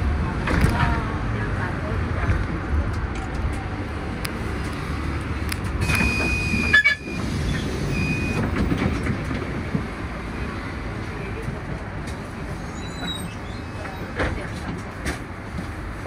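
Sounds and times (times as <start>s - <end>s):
bus engine and road rumble: 0.0s - 16.0s
high electronic beep: 7.9s - 8.4s.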